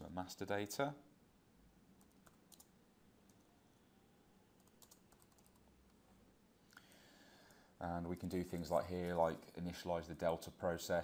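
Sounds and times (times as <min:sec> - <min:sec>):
keyboard keystrokes: 0:04.6 - 0:05.6
room hiss: 0:05.6 - 0:11.0.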